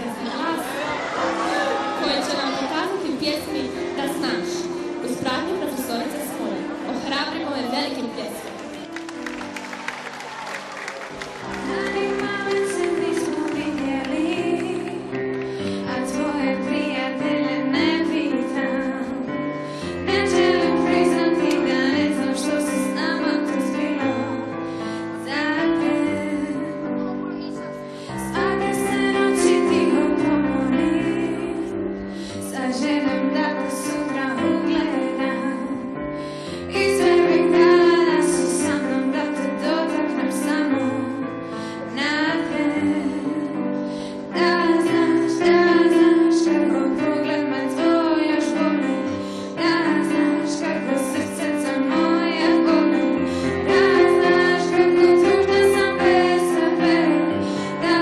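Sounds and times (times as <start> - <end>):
girl singing into a microphone: 11.6 - 15.0, 15.6 - 19.4, 20.0 - 24.5, 25.2 - 27.4, 28.1 - 58.0.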